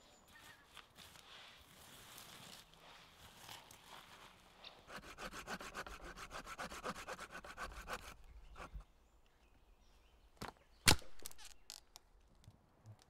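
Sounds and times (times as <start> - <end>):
hand saw cutting wood: 4.9 - 8.8.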